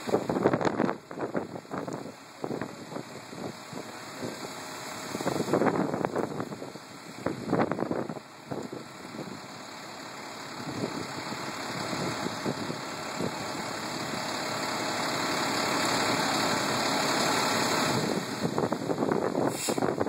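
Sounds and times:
wind buffeting microphone: 0.0s - 9.4s, 10.6s - 14.3s, 17.6s - 20.0s
fire truck engine pumping: 0.0s - 20.0s.

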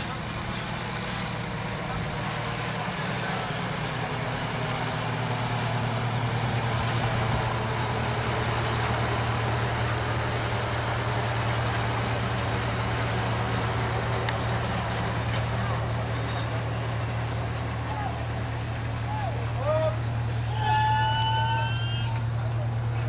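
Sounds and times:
engines humming: 0.0s - 23.0s.

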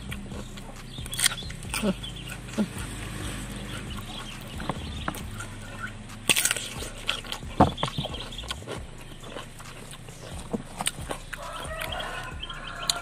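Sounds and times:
cucumber crunching being chewed: 0.0s - 13.0s.

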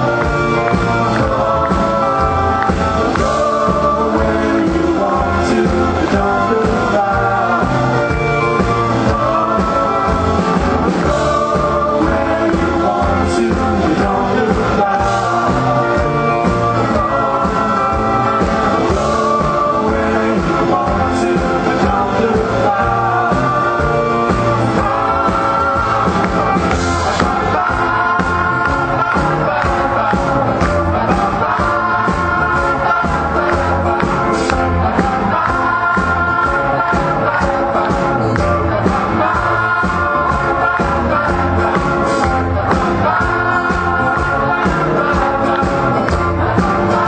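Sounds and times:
live band playing: 0.0s - 47.0s
person singing: 0.0s - 47.0s.

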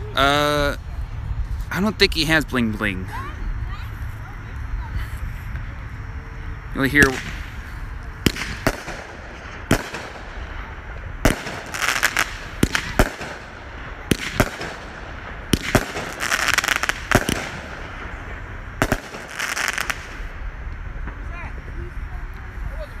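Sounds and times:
fireworks crackle: 0.0s - 23.0s
fireworks bangs: 6.5s - 22.6s.

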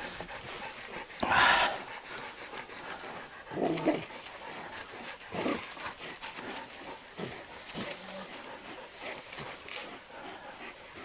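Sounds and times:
scuffling in dry leaves: 5.3s - 10.0s.

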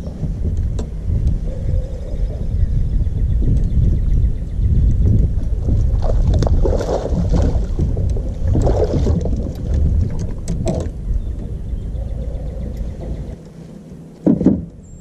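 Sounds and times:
wind rumbling on microphone: 0.0s - 15.0s
water splashing: 5.4s - 10.9s.

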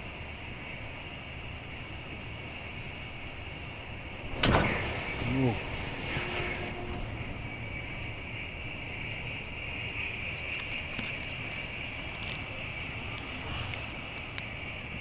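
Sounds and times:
train running at speed: 0.0s - 15.0s
faint clicks: 8.8s - 15.0s.

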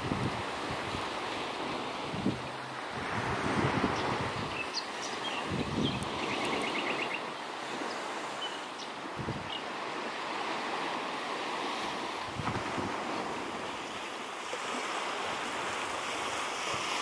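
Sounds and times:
wind buffeting microphone: 0.0s - 7.1s, 9.0s - 10.8s, 11.6s - 14.0s
small waves washing on sand: 0.0s - 17.0s.

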